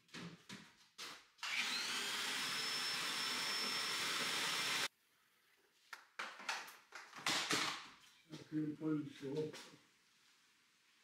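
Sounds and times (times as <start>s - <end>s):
shop vacuum motor whine: 1.4s - 4.9s.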